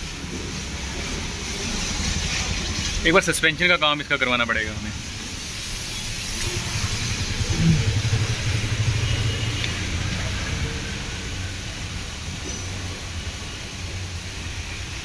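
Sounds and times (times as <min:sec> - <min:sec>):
engine running with low rumble: 0:04.6 - 0:14.8
light hiss: 0:05.1 - 0:08.8.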